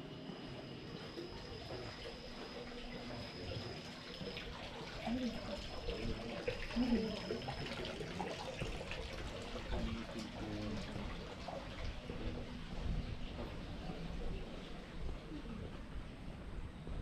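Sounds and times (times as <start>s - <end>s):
people talking: 1.3s - 8.8s, 9.5s - 16.0s
water trickling into a footbath: 1.3s - 12.3s.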